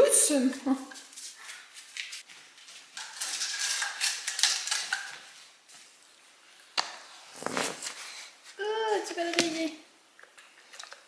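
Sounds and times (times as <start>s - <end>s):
dog crunching and chewing a treat: 3.0s - 5.2s.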